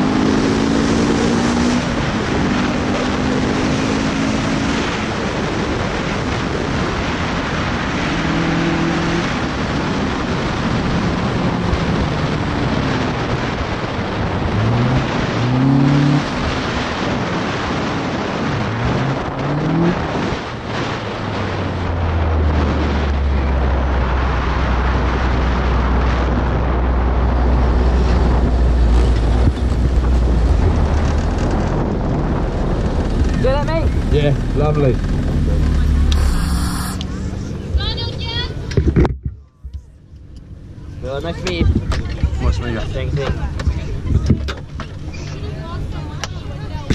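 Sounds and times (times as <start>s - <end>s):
car engine revving: 0.0s - 23.9s, 27.4s - 37.8s
wind rush: 0.0s - 38.7s.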